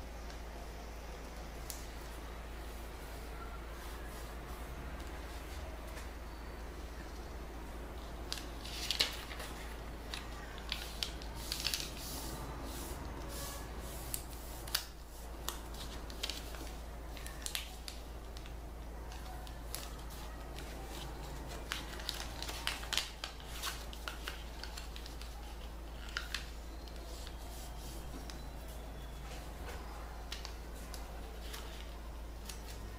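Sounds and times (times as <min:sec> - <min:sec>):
paper crinkling and creasing: 0:08.2 - 0:12.4, 0:13.3 - 0:32.9.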